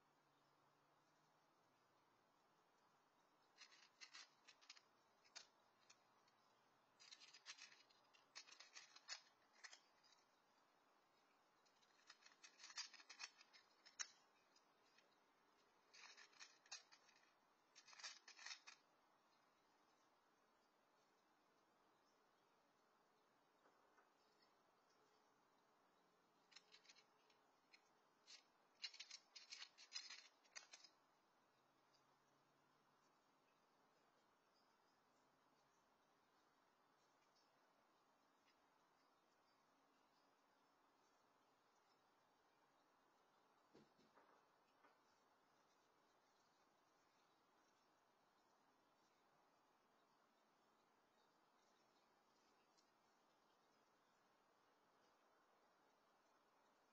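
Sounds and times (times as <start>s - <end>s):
cat crunching dry kibble: 11.7s - 14.8s.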